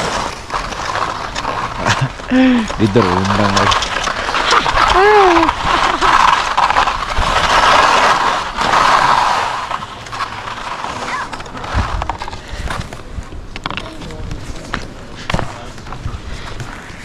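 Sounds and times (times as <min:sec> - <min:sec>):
skis scraping over hard snow: 0:00.0 - 0:13.2
skis chattering clicks and knocks: 0:00.0 - 0:17.0.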